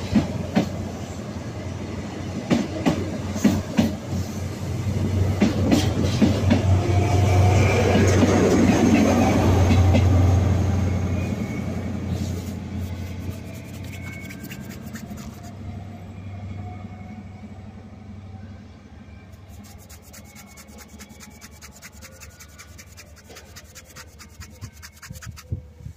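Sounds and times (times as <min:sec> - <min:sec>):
train coaches rumbling: 0:00.0 - 0:13.7
diesel locomotive hum: 0:00.0 - 0:21.4
scratchy crackling: 0:12.4 - 0:15.5, 0:19.4 - 0:25.6.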